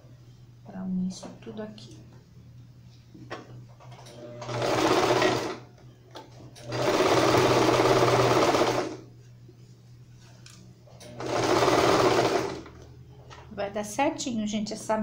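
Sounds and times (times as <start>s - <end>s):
sewing machine stitching: 4.4s - 5.6s, 6.6s - 9.0s, 11.1s - 12.7s.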